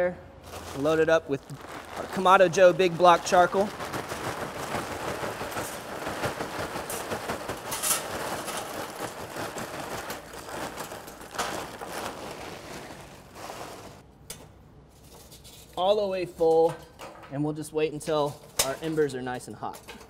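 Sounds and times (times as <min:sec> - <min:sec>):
charcoal clattering into metal chimney: 0:00.4 - 0:14.0.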